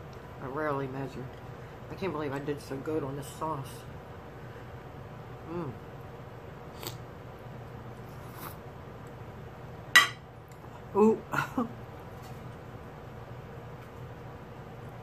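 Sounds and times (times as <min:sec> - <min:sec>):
person eating: 0:06.7 - 0:07.1.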